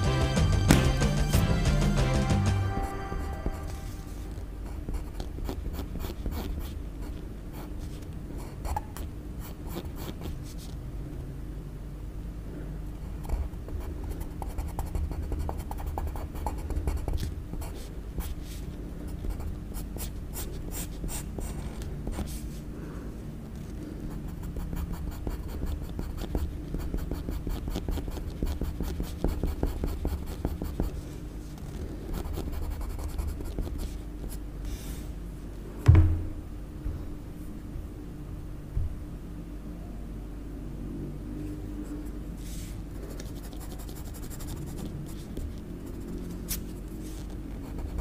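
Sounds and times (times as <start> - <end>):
low steady hum: 0.0 - 48.0
pencil scratching on paper: 3.2 - 7.8, 24.1 - 31.0, 31.8 - 34.0, 43.1 - 48.0
dull thump on table: 35.8 - 36.4.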